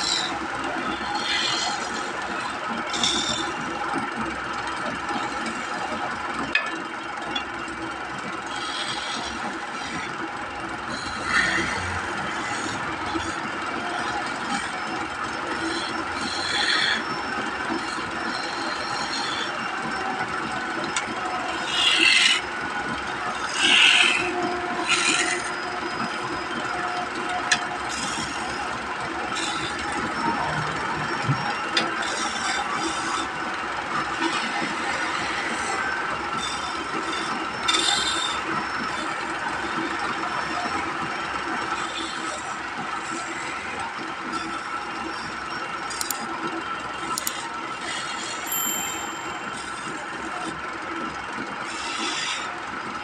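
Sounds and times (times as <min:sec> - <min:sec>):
chisel scraping spinning wood: 0:00.0 - 0:03.7, 0:08.4 - 0:10.2, 0:10.8 - 0:25.6, 0:27.5 - 0:28.6, 0:34.2 - 0:39.3, 0:47.2 - 0:47.4, 0:48.0 - 0:50.0
wood lathe running: 0:00.0 - 0:06.7, 0:07.3 - 0:46.2, 0:46.8 - 0:53.0.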